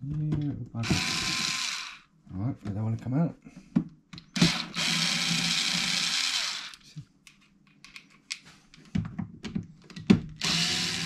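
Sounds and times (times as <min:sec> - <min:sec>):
electric screwdriver motor: 0:00.8 - 0:02.0, 0:04.4 - 0:06.8, 0:10.4 - 0:11.0.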